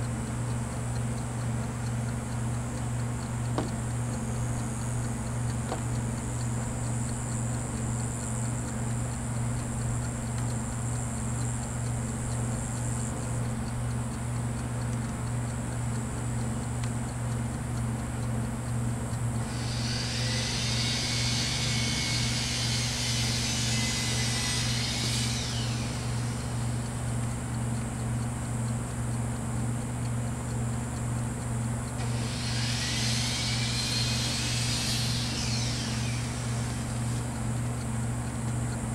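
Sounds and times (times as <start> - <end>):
steady low hum: 0.0 - 38.9
loud high-pitched buzz: 19.4 - 27.3, 32.0 - 37.8.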